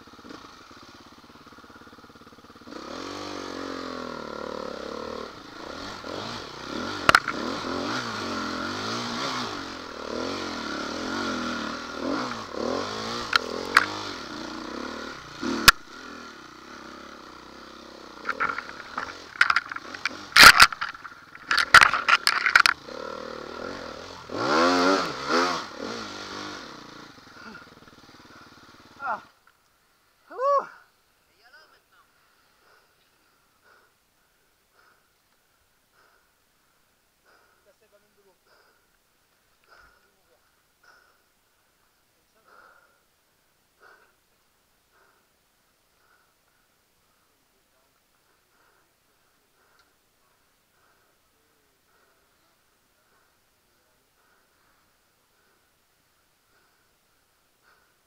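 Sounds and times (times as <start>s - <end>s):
dirt bike engine revving: 0.0s - 30.2s, 40.8s - 41.2s, 50.7s - 57.9s
bike knocking and rattling: 6.9s - 7.6s, 13.3s - 14.1s, 18.2s - 22.9s.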